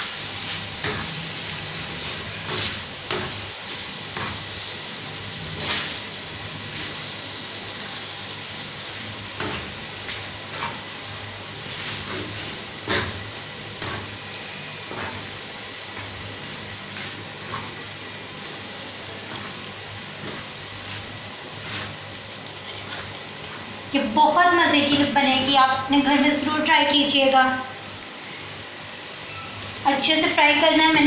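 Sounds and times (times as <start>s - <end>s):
chicken sizzling on griddle: 0.0s - 23.8s
spatula scraping griddle: 5.3s - 7.0s, 8.8s - 13.2s, 16.0s - 23.7s.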